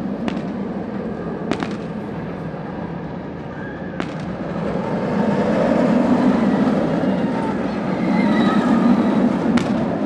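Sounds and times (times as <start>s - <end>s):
roller coaster rumbling on track: 0.0s - 10.0s
sharp cracks: 0.2s - 2.1s, 4.0s - 4.5s, 9.6s - 10.0s.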